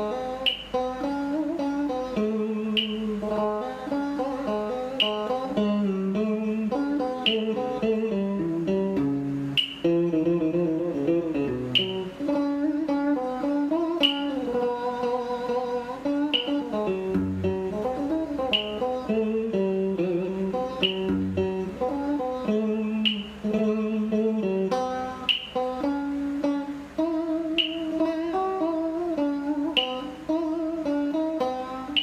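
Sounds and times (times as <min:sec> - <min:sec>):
electric guitar slow melody: 0:00.0 - 0:32.0
sharp tick: 0:00.4 - 0:01.1, 0:02.6 - 0:04.0, 0:04.9 - 0:05.9, 0:06.9 - 0:08.0, 0:09.0 - 0:10.5, 0:11.6 - 0:12.4, 0:14.0 - 0:14.6, 0:16.3 - 0:19.3, 0:20.4 - 0:21.5, 0:22.9 - 0:23.6, 0:25.2 - 0:26.0, 0:27.5 - 0:28.3, 0:29.6 - 0:30.2.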